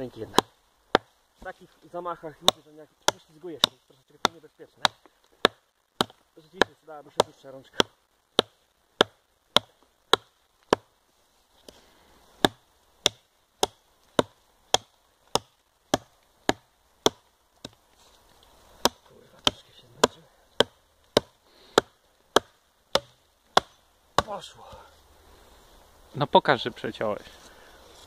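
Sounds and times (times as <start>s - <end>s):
hatchet chopping into log: 0.3s - 1.1s, 2.4s - 10.9s, 12.4s - 17.8s, 18.8s - 24.4s.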